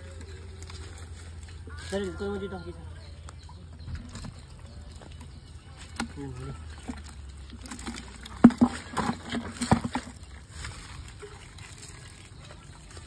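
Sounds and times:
water sloshing: 0:00.0 - 0:13.0
splashing in water: 0:03.8 - 0:13.0.

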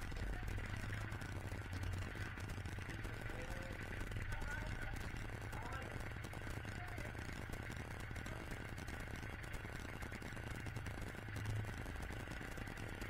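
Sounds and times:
tractor diesel engine idling: 0:00.0 - 0:13.0.

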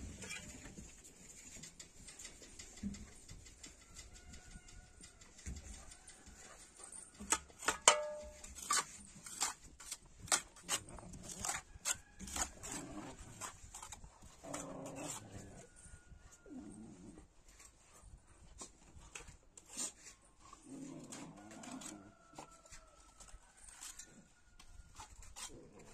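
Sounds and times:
shovel scraping dusty ground: 0:07.2 - 0:15.6, 0:19.6 - 0:22.5, 0:23.4 - 0:25.9.

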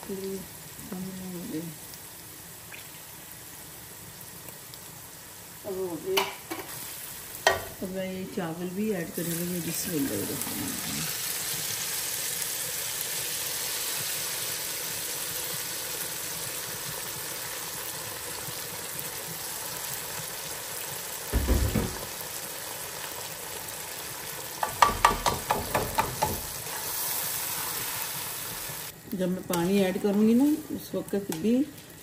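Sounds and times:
rice sizzling in hot oil: 0:00.0 - 0:32.0
heavy thump: 0:21.4 - 0:22.1.

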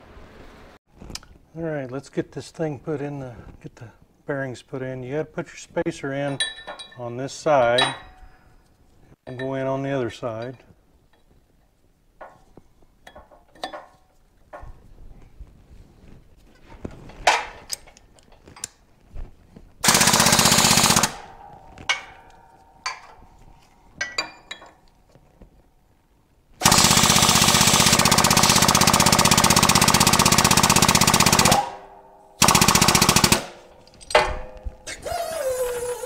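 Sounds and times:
metal parts clicking and knocking: 0:12.2 - 0:14.7, 0:16.6 - 0:18.8, 0:19.8 - 0:23.3, 0:23.9 - 0:25.2, 0:32.5 - 0:35.1
pneumatic air hammer blows: 0:34.8 - 0:36.0.

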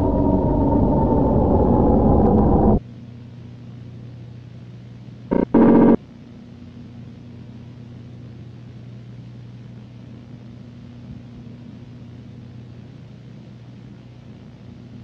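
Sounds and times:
low electrical hum with hiss: 0:02.3 - 0:15.0
loud pitched blips: 0:05.3 - 0:06.0.

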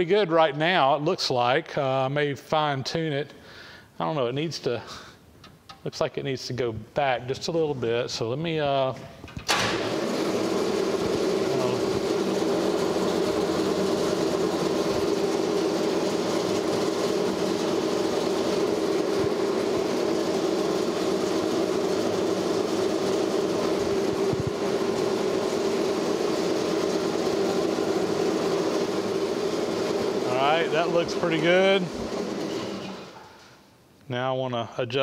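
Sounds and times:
band saw humming: 0:09.7 - 0:33.4.

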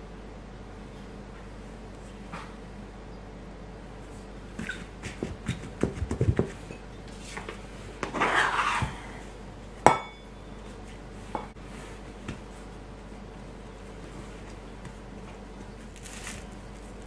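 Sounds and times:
dough scraper scraping bowl: 0:08.0 - 0:09.1
steel bowl clang: 0:09.9 - 0:10.3.

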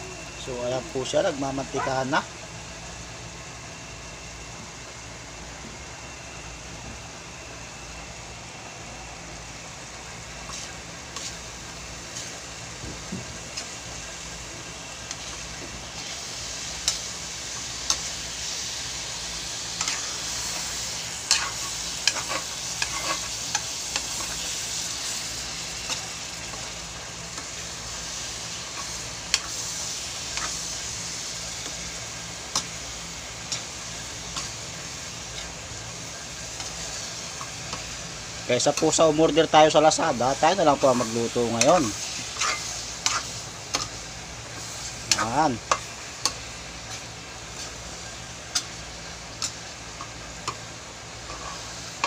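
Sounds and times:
food sizzling in a pan: 0:00.0 - 0:52.0
utensil scraping a pan: 0:21.3 - 0:23.4, 0:41.0 - 0:44.0, 0:51.2 - 0:51.8.

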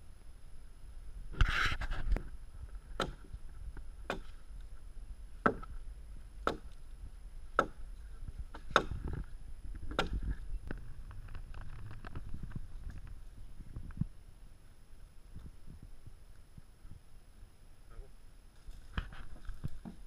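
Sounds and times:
blade chopping into wood: 0:03.0 - 0:03.3, 0:04.1 - 0:04.4, 0:05.4 - 0:05.7, 0:06.4 - 0:06.8, 0:08.5 - 0:09.1, 0:09.9 - 0:10.2.

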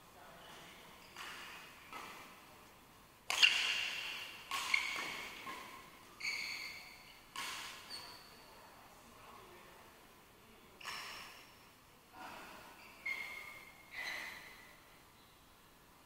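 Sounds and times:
rackets striking shuttlecock: 0:03.3 - 0:06.0.

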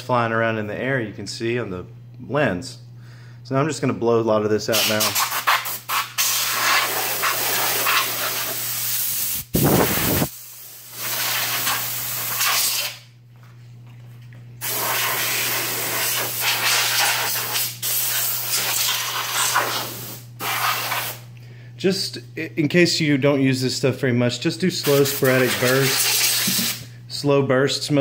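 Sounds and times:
compressed air hissing bursts: 0:04.7 - 0:13.0, 0:14.6 - 0:21.2, 0:24.8 - 0:26.9.

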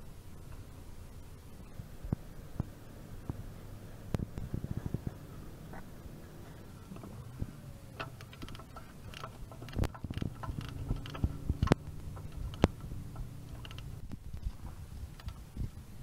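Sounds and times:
ratchet clicking: 0:06.9 - 0:14.1.

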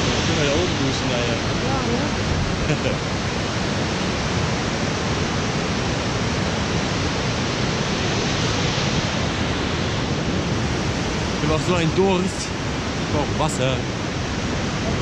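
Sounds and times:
waterfall rushing: 0:04.9 - 0:15.0.

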